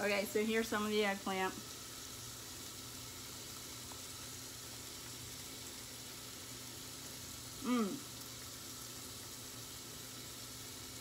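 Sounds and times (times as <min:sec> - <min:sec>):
meat sizzling on a grill: 0:00.0 - 0:11.0
person humming with closed mouth: 0:07.6 - 0:08.1.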